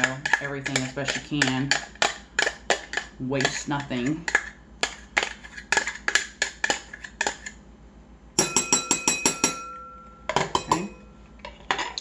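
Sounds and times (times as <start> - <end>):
ringing taps: 8.4 - 11.0.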